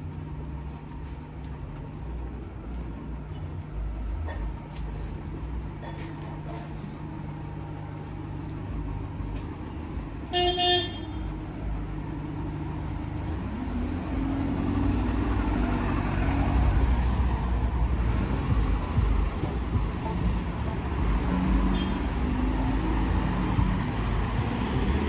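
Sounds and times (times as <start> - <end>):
vehicle approaching: 0.0 - 25.0
vehicle engine running: 0.0 - 25.0
car horn toot: 10.3 - 11.7, 21.7 - 22.0.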